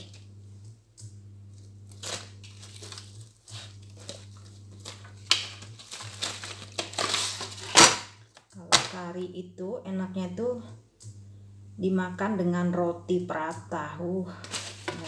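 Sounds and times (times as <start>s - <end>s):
steady low hum: 0.0s - 15.0s
plastic wrap crinkling: 1.5s - 9.0s, 14.4s - 15.0s.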